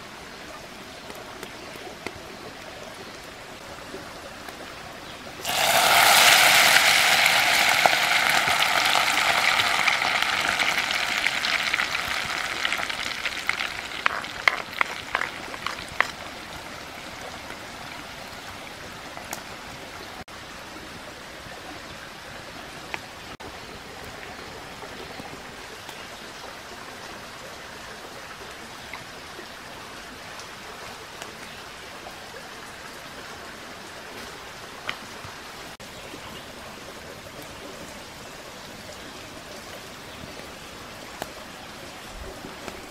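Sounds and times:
creek rushing: 2.5 - 24.8
vegetables sizzling in hot liquid: 5.4 - 16.2.

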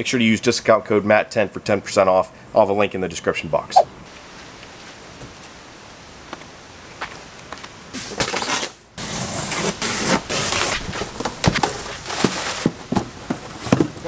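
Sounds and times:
cardboard box being opened: 9.4 - 12.8.

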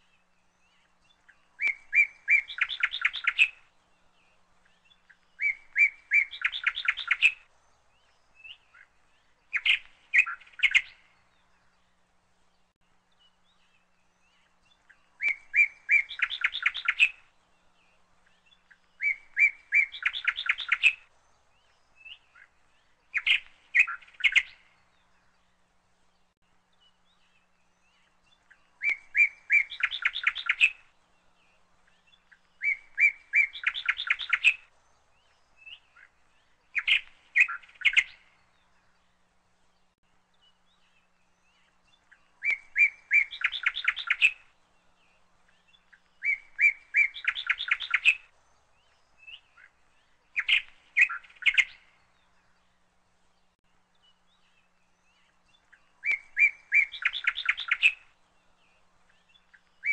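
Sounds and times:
songbird singing with trill: 0.0 - 59.9.

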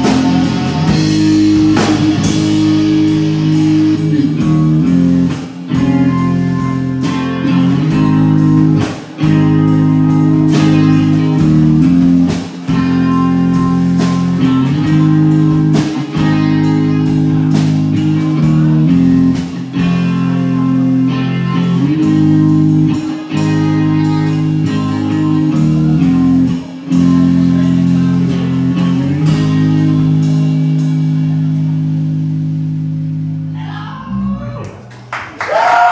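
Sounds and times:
electric guitar chords: 0.0 - 34.9
bass guitar: 0.0 - 35.9.

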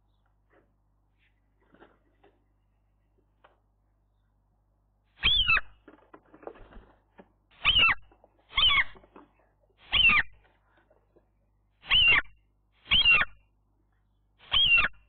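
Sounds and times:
gull calling: 5.2 - 5.8, 9.9 - 10.3.

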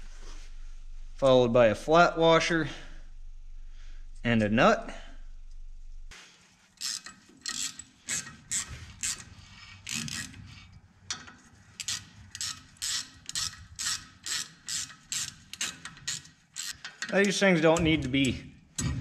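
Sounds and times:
hand ratchet clicking: 6.8 - 10.4, 11.1 - 19.0.

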